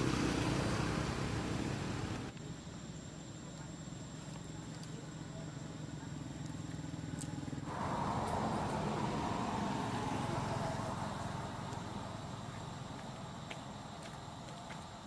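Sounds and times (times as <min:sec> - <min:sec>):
vehicle engine running: 0:00.0 - 0:02.3, 0:04.6 - 0:14.5.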